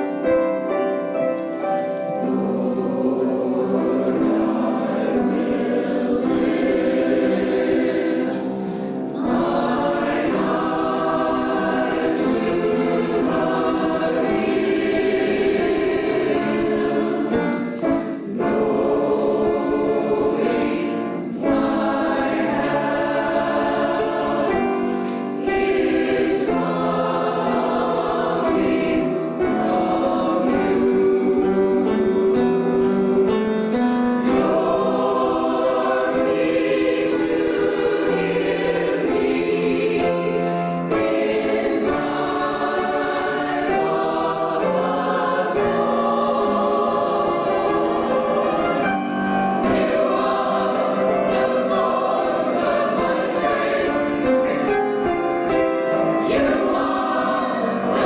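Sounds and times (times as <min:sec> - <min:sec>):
mixed choir singing: 0:00.0 - 0:58.0.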